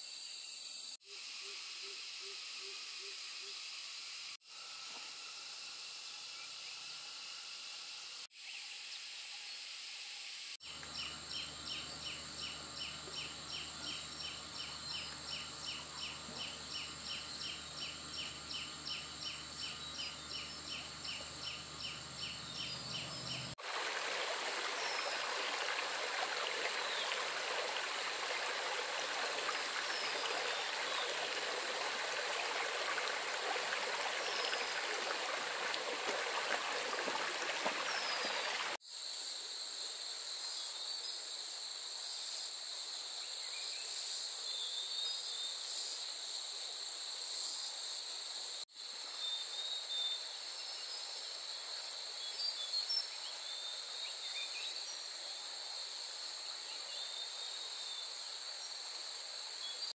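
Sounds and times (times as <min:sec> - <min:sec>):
insects chorus: 0:00.0 - 0:59.9
stream rushing: 0:23.1 - 0:38.8.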